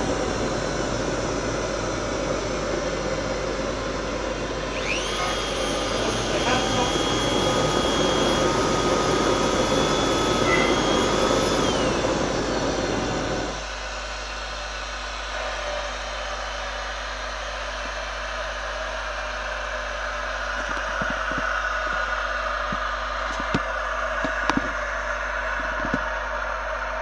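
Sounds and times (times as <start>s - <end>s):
jet engine combustion rush: 0.0s - 15.3s
turbine whine: 0.0s - 27.0s.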